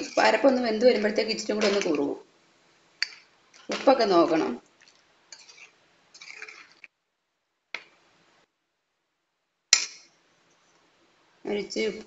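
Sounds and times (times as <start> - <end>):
spoon stirring curry in pan: 2.9 - 6.9.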